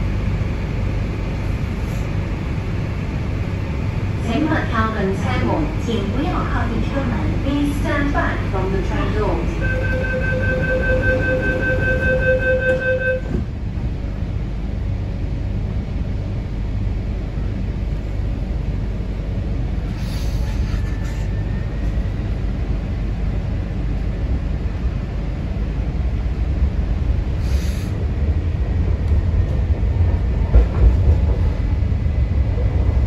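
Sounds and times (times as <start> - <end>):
metro car low rumble: 0.0 - 33.0
train door-closing chime: 9.6 - 13.4
air hiss: 27.4 - 28.0.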